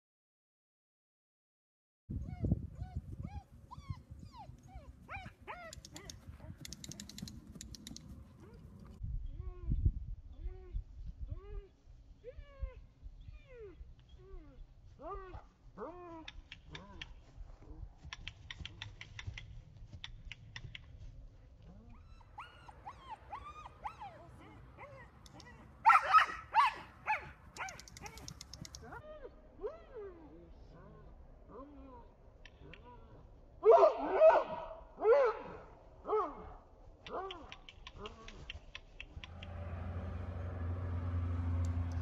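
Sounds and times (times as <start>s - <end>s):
dog yipping and whining: 2.2s - 6.2s, 21.9s - 30.1s
quick sharp clicks: 5.6s - 9.0s, 18.0s - 21.0s, 27.5s - 29.0s, 37.1s - 39.7s
short sharp clicks: 5.7s - 8.2s, 27.5s - 29.0s.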